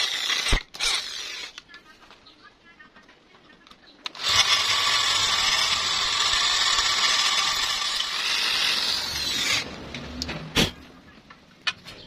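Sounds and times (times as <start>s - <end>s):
electric drill grinding into metal: 0.0s - 1.6s, 4.1s - 9.7s.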